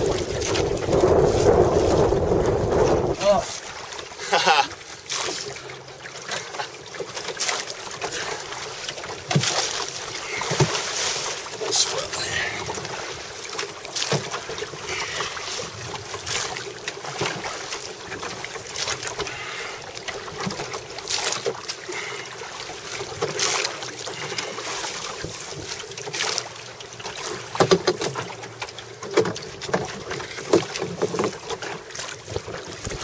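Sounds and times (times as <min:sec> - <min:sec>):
wind on microphone: 0:00.0 - 0:03.4
oars splashing in water: 0:00.0 - 0:33.0.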